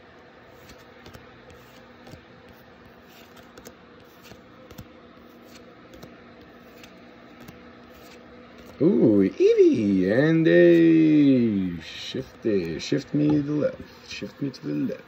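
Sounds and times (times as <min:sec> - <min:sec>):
low steady hum: 0:00.0 - 0:15.0
card pack rustling: 0:00.5 - 0:08.8.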